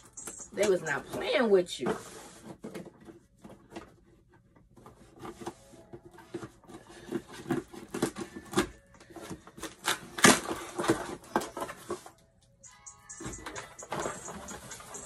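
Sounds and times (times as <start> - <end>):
scissors cutting packing tape: 7.2 - 11.6.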